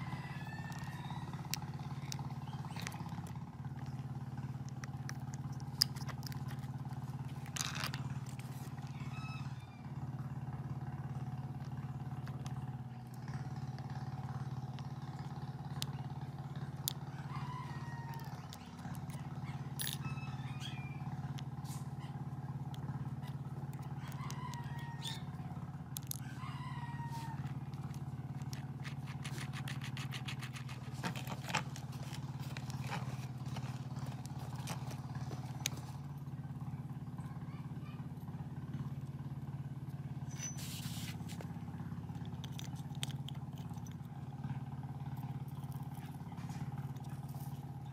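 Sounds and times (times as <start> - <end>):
rooster crowing: 0.0 - 2.3, 8.8 - 10.0, 17.0 - 18.9, 19.9 - 21.2, 23.8 - 29.4
steady low hum: 0.0 - 47.9
hand tools clicking on metal: 27.4 - 35.8.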